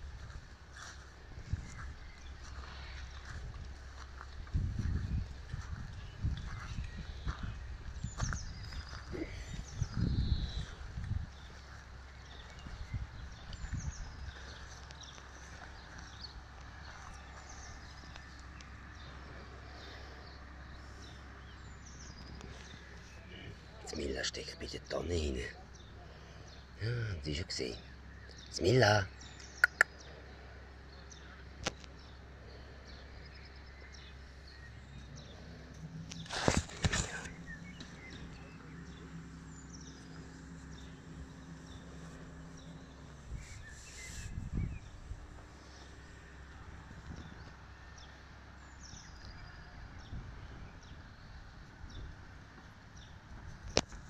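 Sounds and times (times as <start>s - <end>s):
low steady rumble: 0.0s - 24.8s, 29.1s - 54.0s
small birds chirping: 0.0s - 54.0s
steady low hum: 0.0s - 54.0s
fur rustling against microphone: 36.1s - 37.9s.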